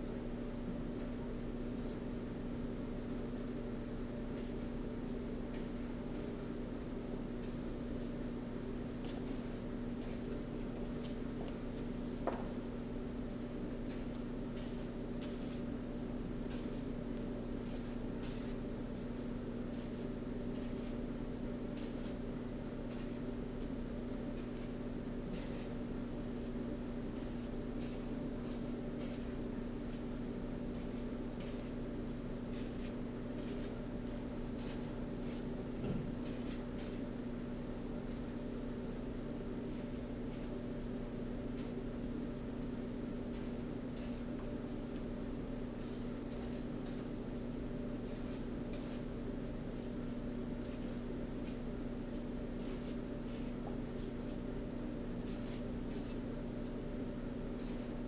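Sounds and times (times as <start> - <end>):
steady low hum: 0.0 - 58.0
scratchy paint strokes: 9.0 - 10.9, 13.3 - 15.7, 16.5 - 16.9, 17.6 - 21.1, 21.7 - 22.2, 24.4 - 31.8, 32.5 - 35.5, 36.2 - 38.4, 39.6 - 40.6, 42.6 - 44.3, 45.8 - 47.2, 48.0 - 49.1, 50.6 - 54.4, 55.2 - 56.8, 57.6 - 58.0.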